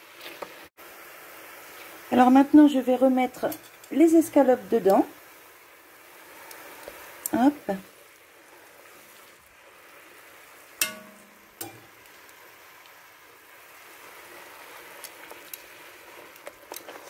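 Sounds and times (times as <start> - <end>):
sauce simmering with steady sizzle: 0.0 - 17.0
metal tongs clinking against pot: 3.4 - 4.0, 10.8 - 12.0.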